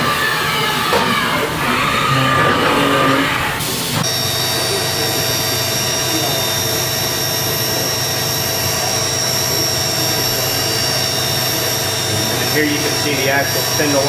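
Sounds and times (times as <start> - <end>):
machine spindle hum and whine: 0.0 - 14.0.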